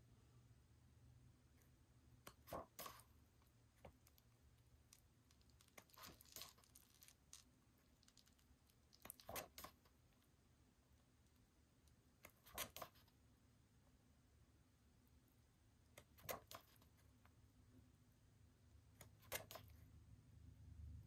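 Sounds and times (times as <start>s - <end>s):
pages turning: 2.3s - 3.1s, 4.9s - 9.9s, 12.3s - 13.1s, 19.1s - 19.8s.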